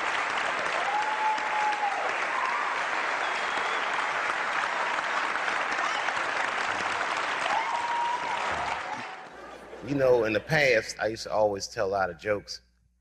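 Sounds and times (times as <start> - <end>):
audience applauding: 0.0 - 10.4
drawn-out cheers: 0.7 - 4.2, 7.1 - 9.2.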